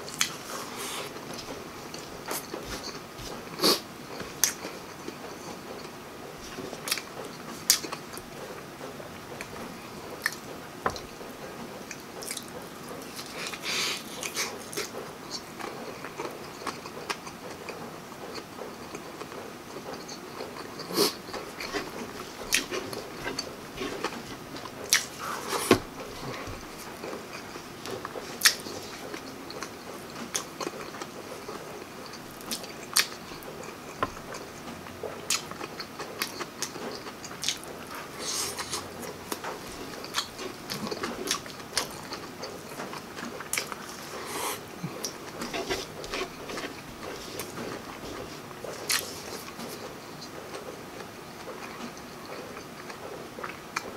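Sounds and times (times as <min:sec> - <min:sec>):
wet chewing and lip smacks: 0:11.9 - 0:44.2, 0:44.9 - 0:50.8.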